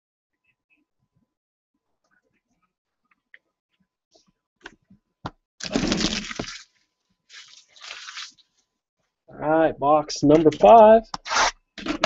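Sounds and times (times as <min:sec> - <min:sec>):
cellophane wrap crinkling: 0:05.6 - 0:08.6.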